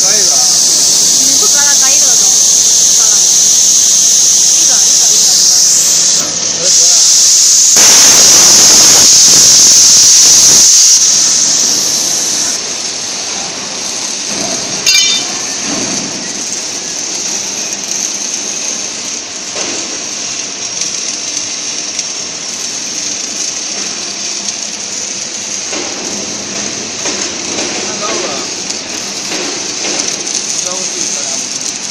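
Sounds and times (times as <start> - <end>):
plasma torch hissing: 0.0 - 31.9
sharp click: 14.9 - 15.4.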